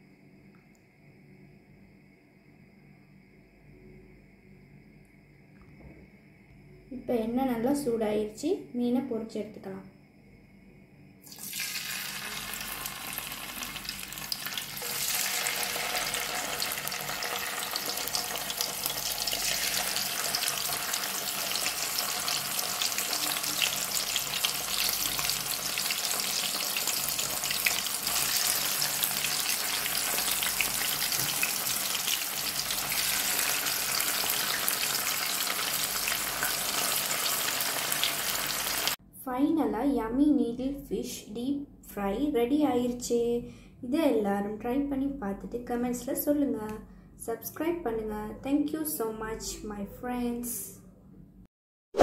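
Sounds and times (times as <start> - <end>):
fish frying in hot oil: 11.2 - 39.0.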